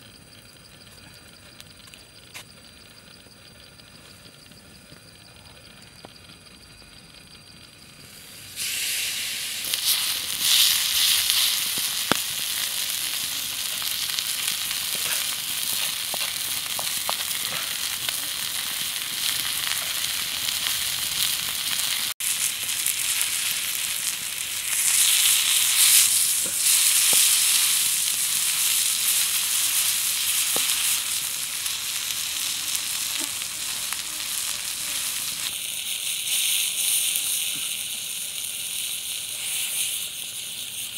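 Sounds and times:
fish sizzling on hot stone: 0:00.0 - 0:40.9
small pops: 0:09.6 - 0:12.7, 0:24.6 - 0:38.5.

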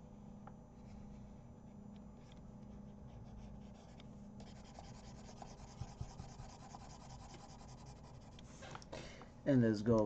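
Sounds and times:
stylus scratching on tablet: 0:02.7 - 0:08.4.

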